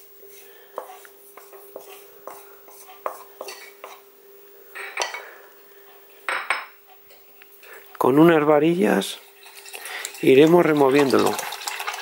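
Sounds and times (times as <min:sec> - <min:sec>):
spatula clatter: 0:09.2 - 0:12.0.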